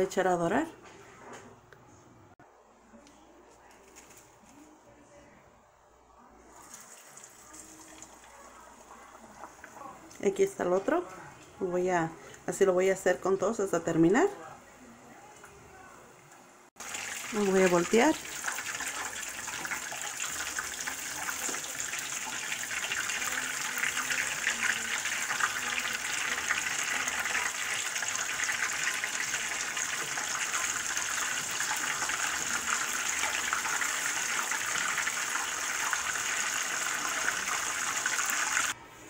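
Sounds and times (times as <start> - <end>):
hot oil sizzling and crackling: 16.8 - 38.8.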